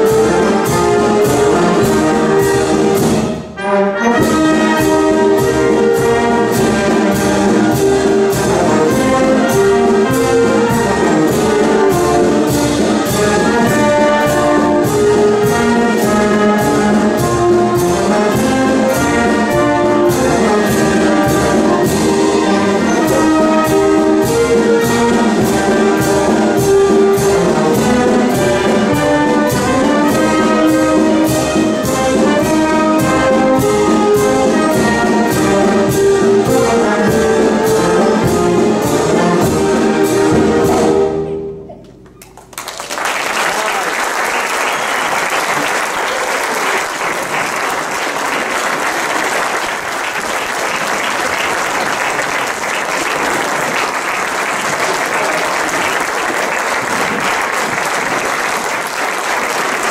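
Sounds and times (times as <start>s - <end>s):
wind band playing a march: 0.0s - 41.7s, 43.2s - 59.9s
audience applause: 42.2s - 59.9s.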